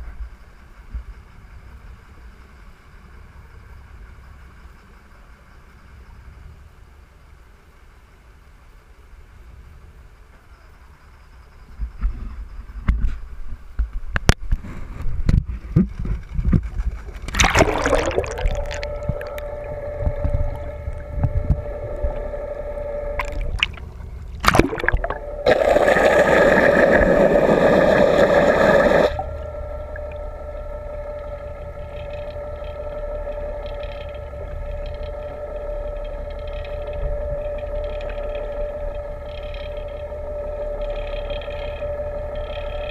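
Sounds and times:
underwater boat engine whine: 17.0 - 42.9
camera splashing into water: 17.3 - 19.4, 23.2 - 23.8, 24.4 - 26.0
water rushing over microphone: 17.3 - 22.3, 23.2 - 30.4.

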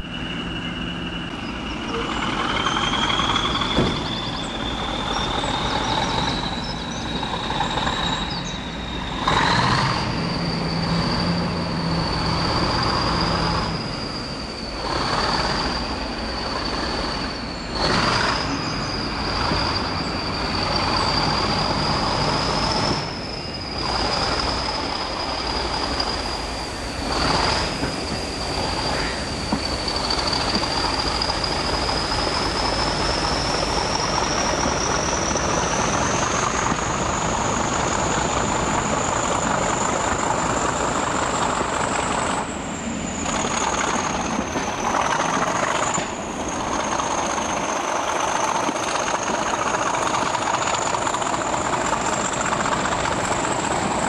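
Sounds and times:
high whistle: 0.0 - 50.4
diesel locomotive at full power: 0.0 - 54.0
train running noise: 0.0 - 54.0.

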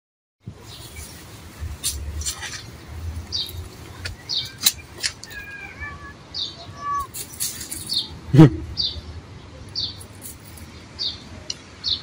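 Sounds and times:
high bird chirps: 3.3 - 5.7.

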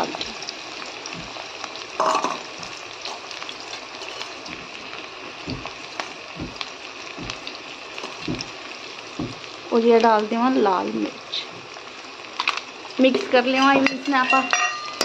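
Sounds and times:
onions sizzling in hot oil: 0.0 - 15.0
soft knocks: 5.4 - 7.5, 8.2 - 8.6, 9.2 - 9.4.

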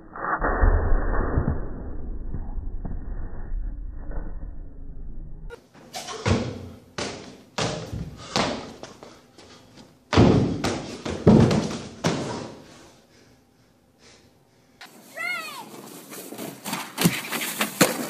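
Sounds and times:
feet thudding on wooden box: 10.1 - 12.5.

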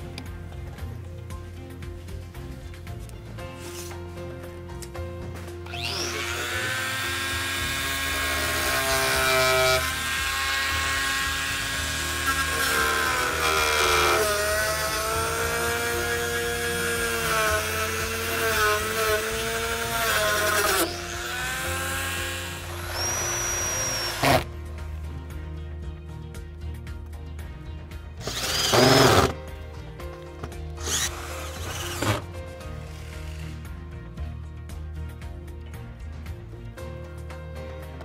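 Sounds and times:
cordless drill running: 5.6 - 24.5, 28.2 - 29.4, 30.8 - 33.6
reciprocating saw cutting: 5.6 - 24.5, 28.2 - 29.4, 30.8 - 33.7.

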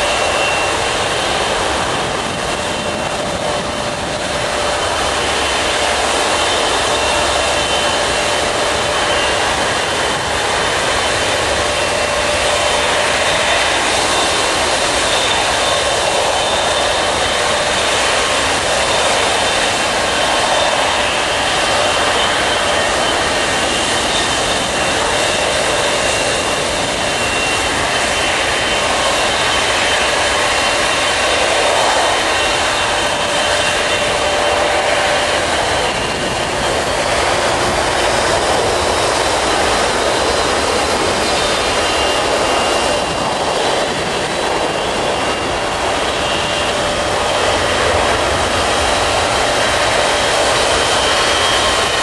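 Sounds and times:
jet engines idling whine: 0.0 - 52.0.

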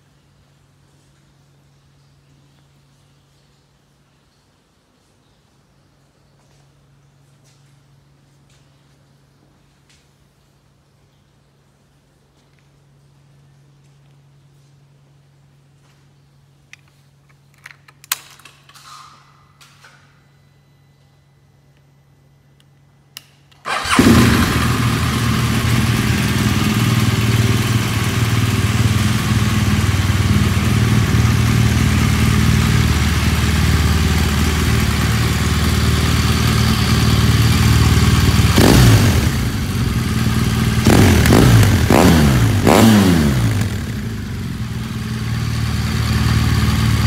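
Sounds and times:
motorcycle engine starting and idling: 23.5 - 47.0
motorcycle engine revving: 23.7 - 47.0.

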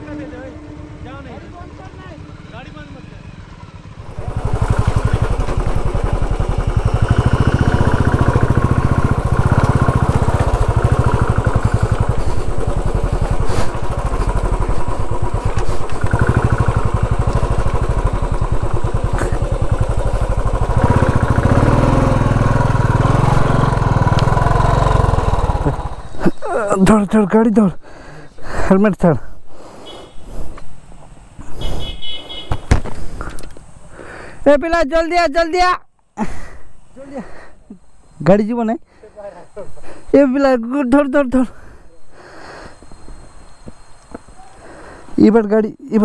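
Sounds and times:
motorcycle engine under load: 0.0 - 26.7.

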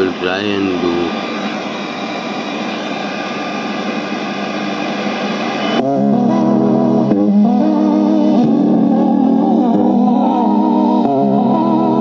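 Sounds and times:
radio static hiss: 0.0 - 5.8.

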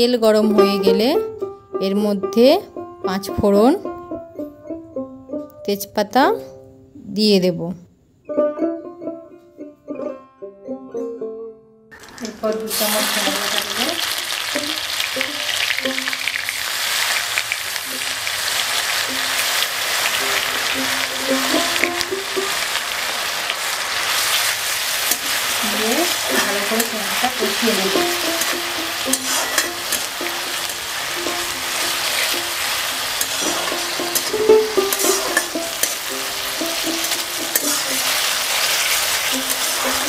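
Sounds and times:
soft background music: 0.0 - 7.3, 19.2 - 22.7, 25.1 - 38.7
paste sizzling in oil: 11.9 - 40.0
metal spatula scraping pan: 16.9 - 40.0.

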